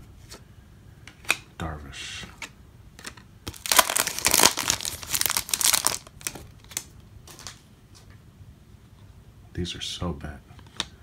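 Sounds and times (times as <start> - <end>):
card pack wrapper crinkling: 3.0 - 7.6.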